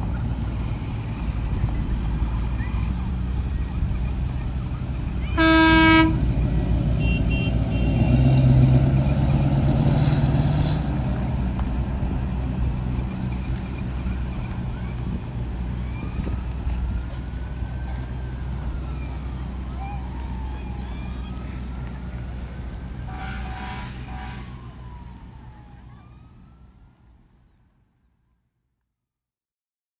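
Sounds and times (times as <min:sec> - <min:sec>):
emergency sirens wailing: 0:00.0 - 0:27.4
horn blast: 0:05.2 - 0:06.4, 0:07.0 - 0:08.6, 0:23.0 - 0:25.0.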